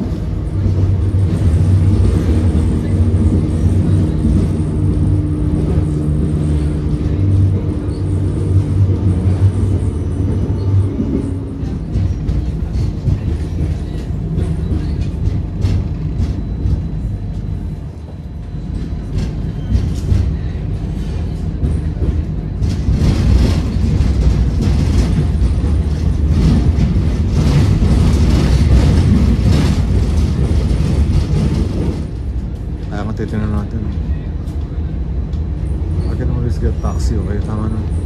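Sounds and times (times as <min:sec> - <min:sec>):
tram wheels rumbling on rails: 0:00.0 - 0:38.0
sharp clicks of tram wheels: 0:18.8 - 0:33.1.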